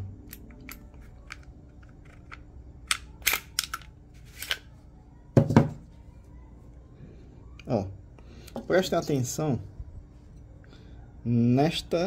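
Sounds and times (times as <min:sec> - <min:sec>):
pistol metallic clicks: 0:00.2 - 0:04.6.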